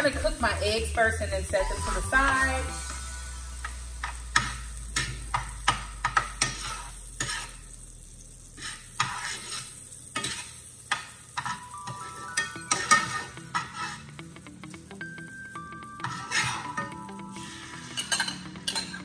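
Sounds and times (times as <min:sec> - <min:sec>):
butter sizzling: 0:00.0 - 0:19.0
metal spoon scraping a skillet: 0:04.0 - 0:07.8, 0:08.5 - 0:11.8, 0:12.7 - 0:14.2, 0:16.0 - 0:19.0.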